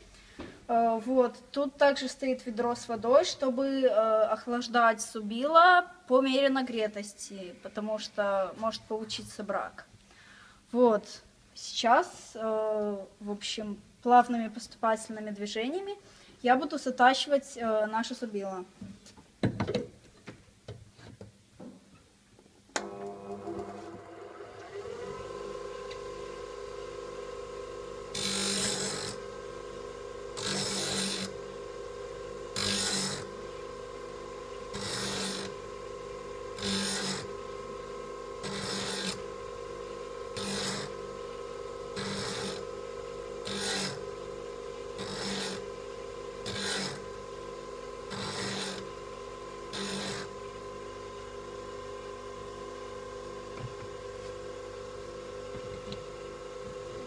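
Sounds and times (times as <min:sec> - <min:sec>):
bench grinder humming: 0:22.8 - 0:57.0
chisel grinding on wheel: 0:28.1 - 0:29.2, 0:30.4 - 0:31.3, 0:32.5 - 0:33.3, 0:34.7 - 0:35.6, 0:36.6 - 0:37.4, 0:38.4 - 0:39.3, 0:40.3 - 0:41.0, 0:41.9 - 0:42.7, 0:43.4 - 0:44.2, 0:45.0 - 0:45.8, 0:46.4 - 0:47.1, 0:48.0 - 0:49.0, 0:49.7 - 0:50.4.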